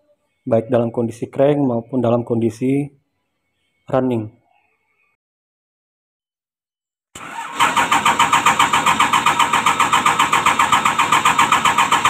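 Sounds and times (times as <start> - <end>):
diesel engine cranking: 7.2 - 12.0.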